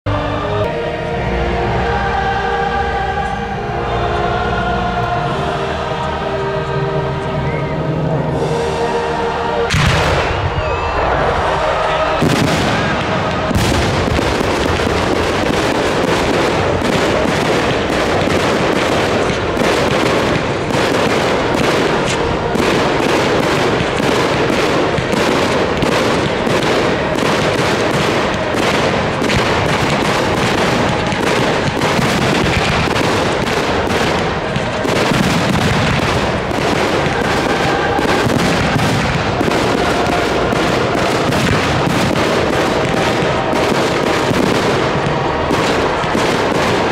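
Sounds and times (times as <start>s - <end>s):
fireworks bangs and crackles: 9.6s - 46.9s.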